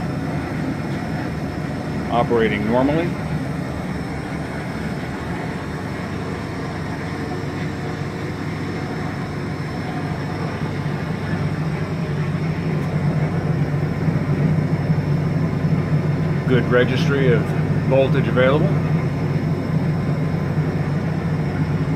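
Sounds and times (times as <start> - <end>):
fan noise: 0.0 - 21.9
low electrical hum: 0.0 - 21.9.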